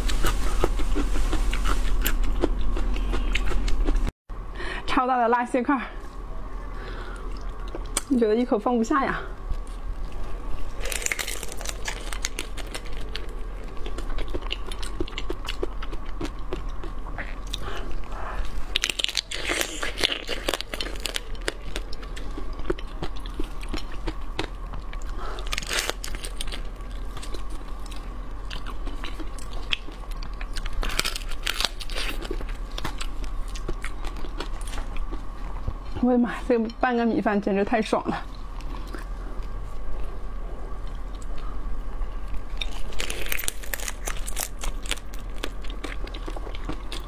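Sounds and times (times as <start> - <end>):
wet crunching and chewing: 0.0 - 4.1, 9.5 - 36.0, 42.2 - 47.0.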